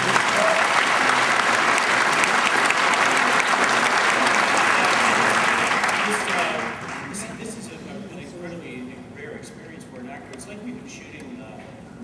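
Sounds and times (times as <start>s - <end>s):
audience applause: 0.0s - 7.2s.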